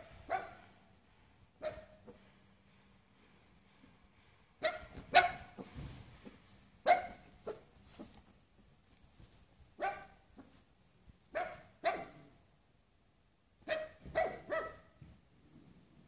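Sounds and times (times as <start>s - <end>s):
puppy barking: 0.1s - 0.8s, 1.6s - 2.2s, 4.6s - 5.7s, 6.8s - 7.7s, 9.8s - 10.2s, 11.3s - 12.3s, 13.6s - 15.0s.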